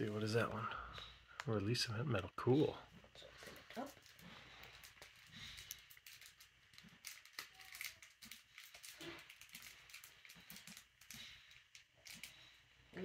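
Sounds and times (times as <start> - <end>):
plastic sleeve crinkling: 3.2 - 12.6.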